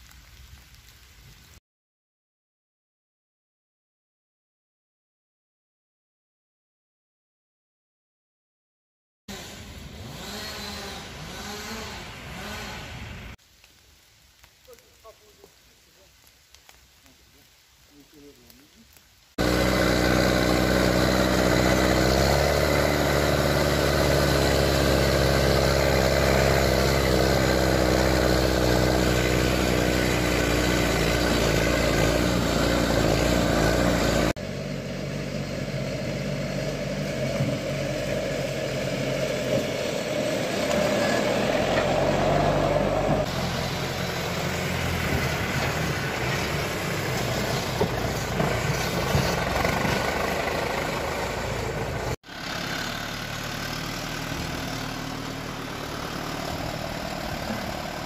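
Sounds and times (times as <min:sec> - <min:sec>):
diesel engine running: 0:09.3 - 0:13.4, 0:19.4 - 0:58.0.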